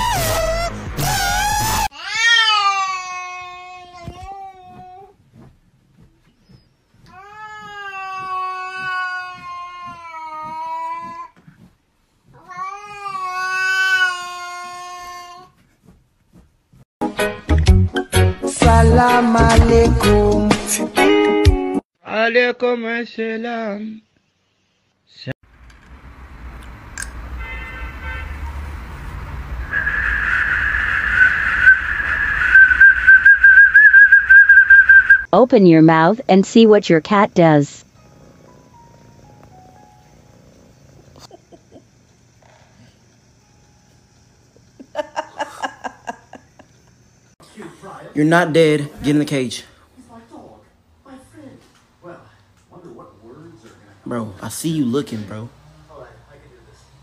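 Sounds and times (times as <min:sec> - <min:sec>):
high whistle trilling: 0:29.6 - 0:35.3.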